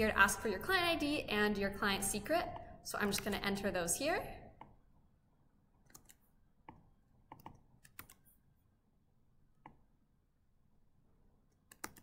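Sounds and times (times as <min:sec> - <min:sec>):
keyboard and mouse clicks: 0:05.7 - 0:08.4, 0:09.5 - 0:09.9, 0:11.5 - 0:12.0.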